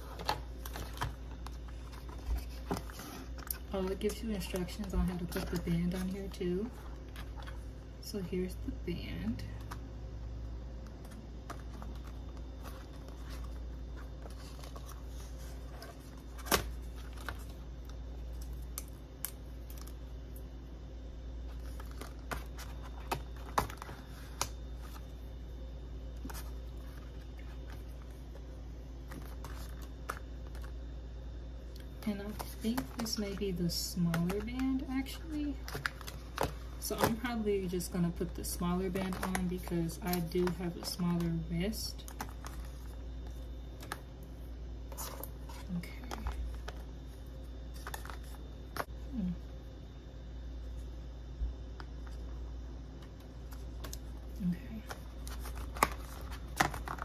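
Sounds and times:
steady low hum: 0.0s - 57.0s
packaging being handled: 21.4s - 25.2s, 53.1s - 57.0s.

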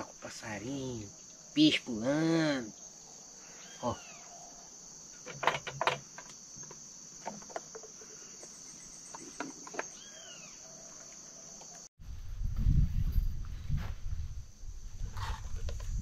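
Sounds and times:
high-pitched insect chorus: 0.0s - 11.9s.

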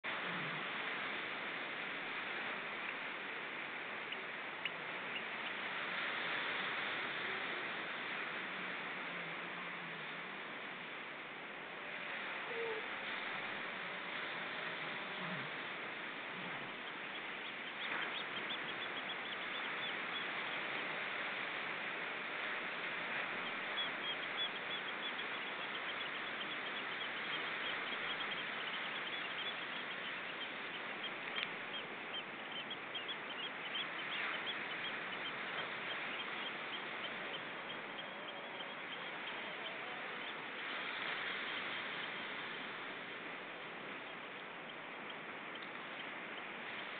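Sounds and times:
waves breaking on stony shore: 0.1s - 44.6s
high bird calls: 23.4s - 40.8s.

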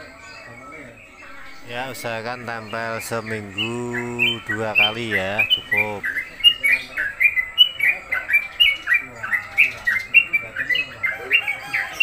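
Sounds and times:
birds chirping rapidly: 0.0s - 12.0s.

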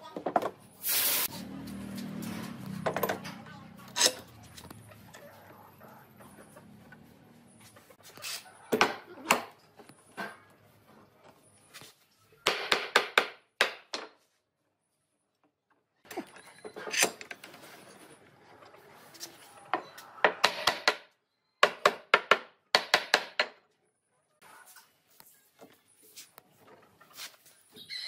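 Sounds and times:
shuffling and handling: 24.6s - 27.8s.

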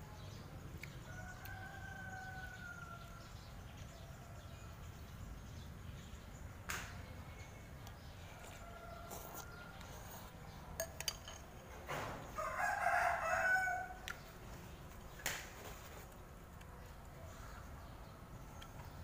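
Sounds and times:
rooster crowing: 1.0s - 3.3s, 8.4s - 9.9s, 12.3s - 14.1s.

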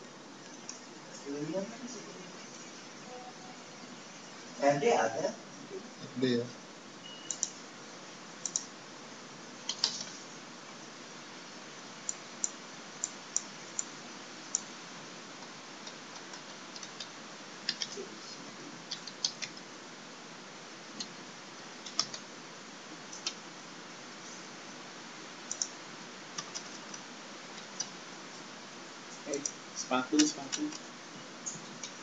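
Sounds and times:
background hiss: 0.0s - 32.0s
computer keyboard keystrokes: 7.3s - 7.6s, 8.4s - 8.7s, 9.6s - 10.1s, 15.8s - 18.0s, 18.9s - 19.6s, 21.8s - 22.2s, 23.2s - 23.4s, 25.5s - 25.7s, 26.4s - 27.0s.

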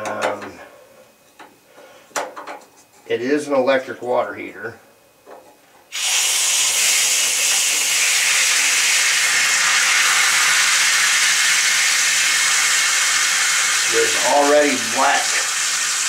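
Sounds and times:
water jet hissing: 5.9s - 16.0s.

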